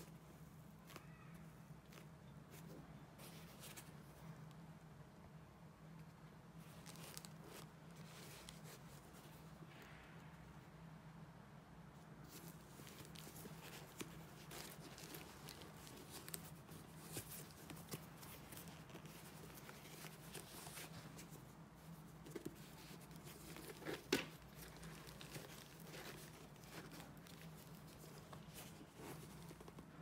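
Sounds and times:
low steady hum: 0.0s - 30.0s
tissue paper rustling: 6.6s - 9.4s, 12.2s - 30.0s.

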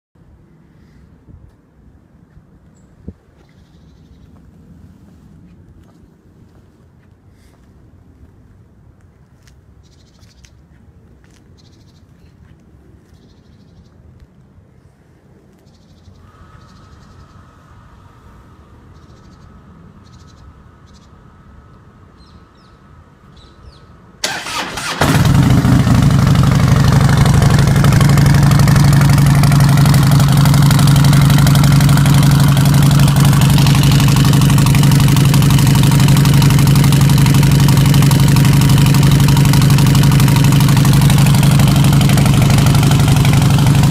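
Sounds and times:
motorcycle starter cranking: 24.2s - 27.7s
motorcycle engine idling: 24.2s - 43.9s.

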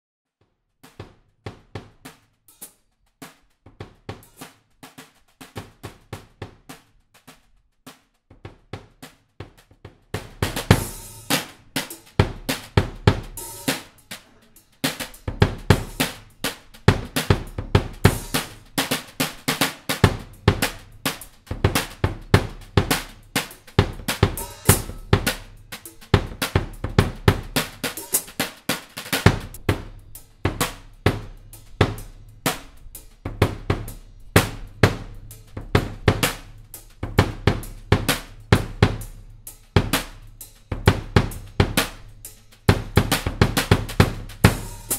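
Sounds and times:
drum kit groove: 0.4s - 44.9s
bass drum kicks: 12.2s - 13.4s, 15.2s - 16.3s, 16.9s - 18.8s, 20.0s - 27.9s, 29.2s - 39.2s, 42.7s - 44.9s.

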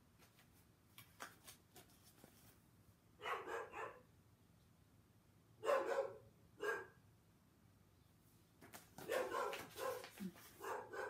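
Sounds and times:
book page turning: 0.2s - 2.6s, 8.6s - 10.6s
dog barking: 3.2s - 4.1s, 5.6s - 7.0s, 9.0s - 11.0s.

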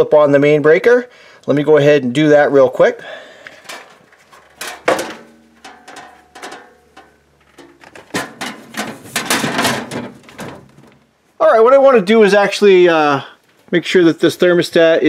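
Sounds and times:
metallic clattering and scraping: 3.4s - 11.2s
clicks and knocks: 3.5s - 11.1s.

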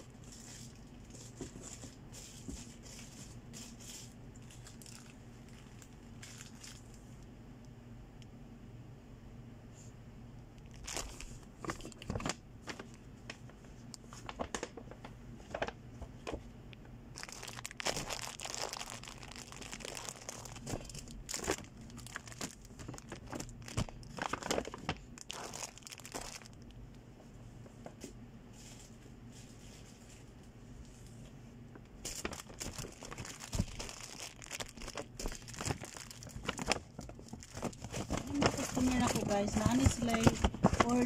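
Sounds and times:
plastic wrappers crinkling: 0.0s - 7.1s, 10.6s - 16.4s, 17.1s - 26.8s, 32.0s - 41.0s.

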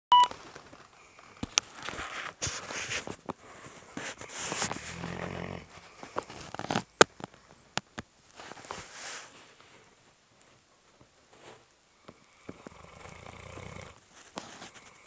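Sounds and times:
dog snoring: 4.2s - 6.0s, 12.4s - 14.0s
dog groaning: 4.8s - 5.8s.

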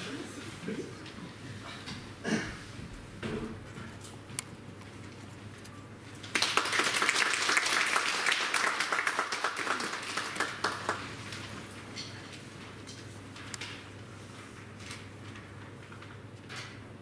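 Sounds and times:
audience applauding: 6.3s - 11.2s.

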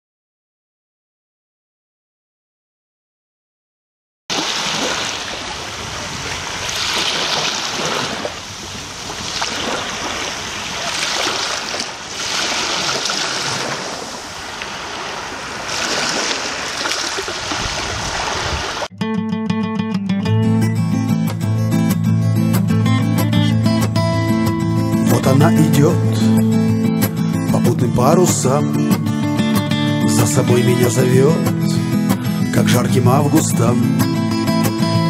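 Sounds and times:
sea surf washing onto beach: 4.3s - 18.9s
acoustic guitar: 18.9s - 35.0s.

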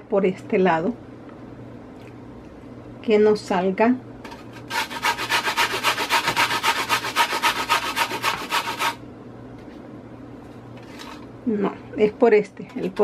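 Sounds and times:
carrot grated on a metal grater: 4.3s - 9.0s.

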